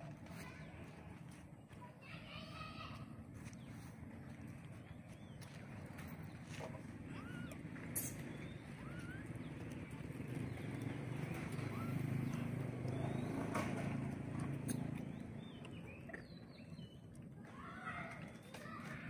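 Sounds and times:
short rising squeaks: 7.0s - 9.6s.

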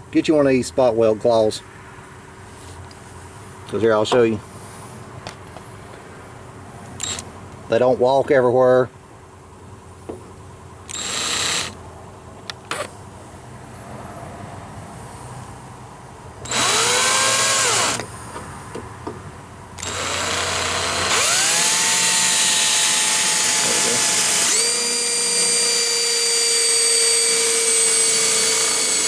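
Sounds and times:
electric drill whining: 7.0s - 7.2s, 10.9s - 11.8s, 16.4s - 18.1s, 19.8s - 29.0s.

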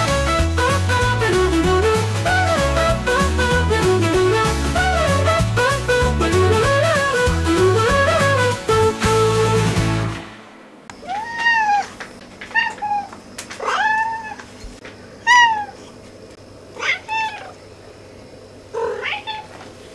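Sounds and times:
background music: 0.0s - 10.9s
cat meowing: 11.0s - 14.5s, 15.2s - 15.8s, 16.8s - 17.6s, 18.8s - 19.6s.

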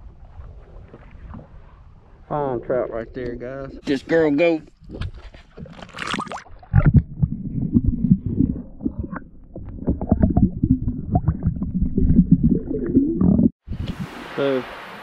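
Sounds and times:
splash into water: 5.7s - 6.9s.

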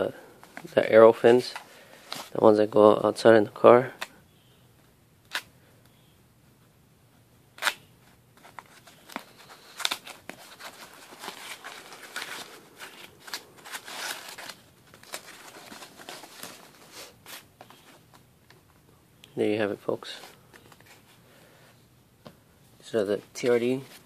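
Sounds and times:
foam sheet crinkling: 8.5s - 17.9s.

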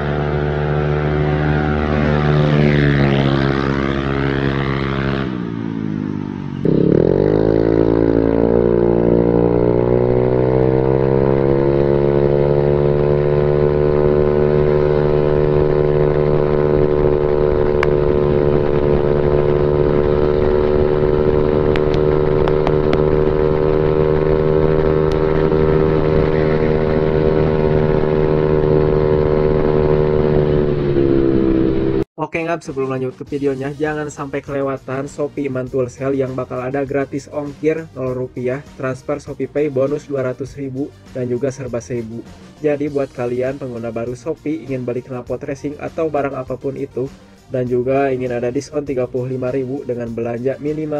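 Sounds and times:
scooter engine accelerating: 0.0s - 32.1s.

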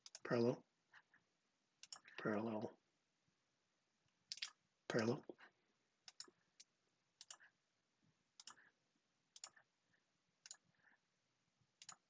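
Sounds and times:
computer mouse clicking: 0.0s - 0.3s, 1.8s - 2.1s, 6.0s - 7.5s, 8.4s - 8.7s, 9.3s - 9.6s, 10.4s - 10.6s, 11.8s - 12.0s.

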